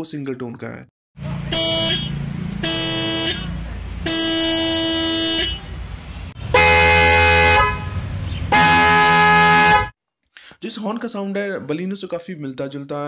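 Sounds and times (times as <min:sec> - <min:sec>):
single-tone car horn: 0:01.3 - 0:05.7, 0:06.4 - 0:07.9, 0:08.5 - 0:09.9
twin-tone car horn: 0:01.3 - 0:05.7, 0:06.3 - 0:09.9.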